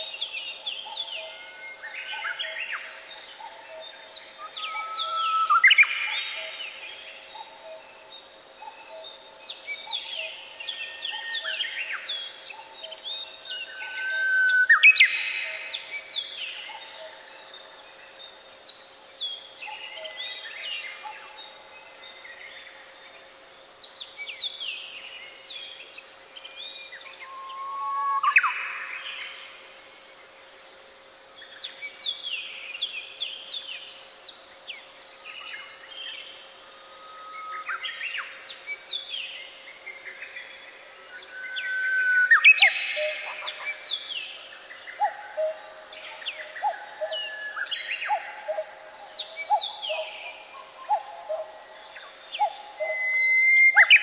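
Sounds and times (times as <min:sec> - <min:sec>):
songbirds chirping: 0:00.0 - 0:54.0
bird whistle with upward sweep: 0:27.2 - 0:28.9, 0:41.2 - 0:43.4, 0:52.8 - 0:54.0.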